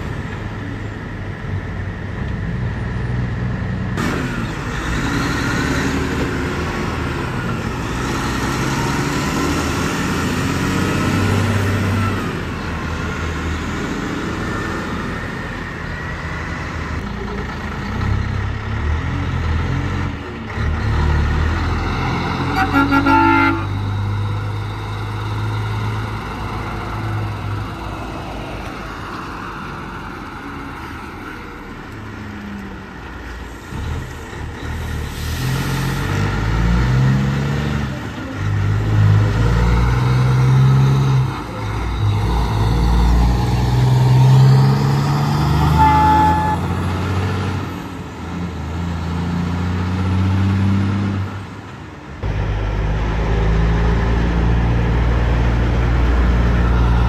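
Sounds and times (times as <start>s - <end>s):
heavy trucks passing: 0.0s - 57.0s
truck horn toot: 22.4s - 24.0s, 45.6s - 46.8s.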